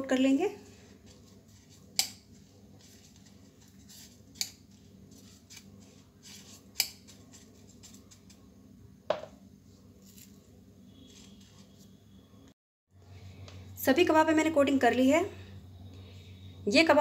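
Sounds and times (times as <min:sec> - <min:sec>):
rustling and scraping of spices: 0:00.6 - 0:08.5, 0:09.6 - 0:12.1.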